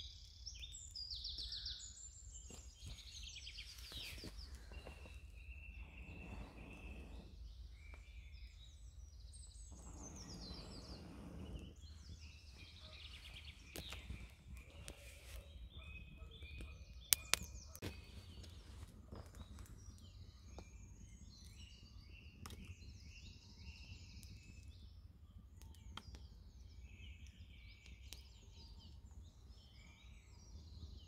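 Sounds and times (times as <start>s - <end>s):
birds chirping and trilling: 0.0s - 31.0s
person blowing on embers: 4.2s - 7.7s, 9.6s - 12.8s.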